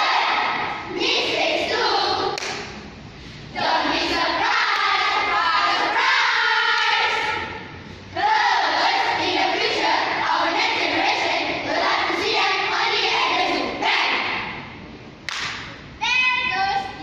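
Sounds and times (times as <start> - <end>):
children chanting in unison: 0.0 - 2.4, 3.5 - 14.6.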